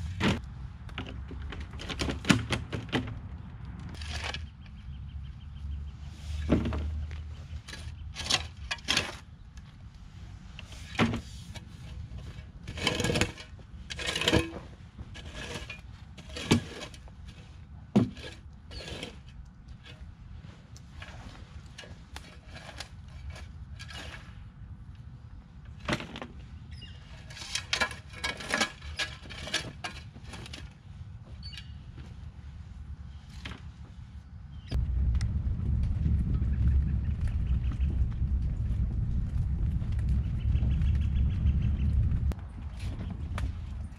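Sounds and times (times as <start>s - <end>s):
shovel scraping dirt: 3.9s - 4.6s, 7.6s - 9.3s, 10.6s - 20.1s, 20.9s - 24.4s, 27.1s - 30.8s.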